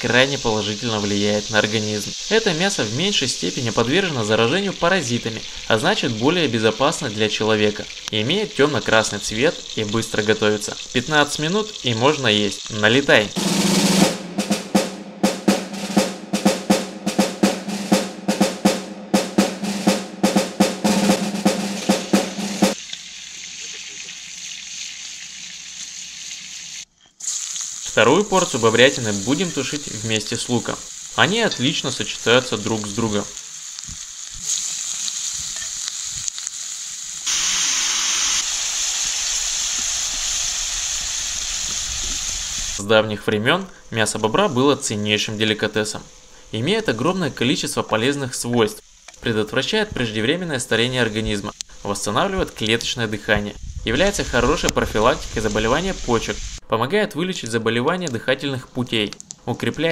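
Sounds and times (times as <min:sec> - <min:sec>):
onions sizzling in a pan: 0:00.0 - 0:13.4, 0:21.8 - 0:42.8, 0:43.7 - 0:56.6
fast snare drum pattern: 0:13.4 - 0:22.8.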